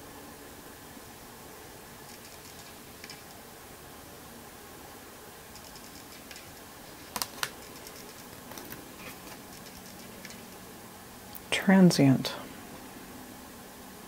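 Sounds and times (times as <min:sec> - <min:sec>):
cards ticking: 0:05.5 - 0:10.6
sharp card clicks: 0:07.1 - 0:10.4.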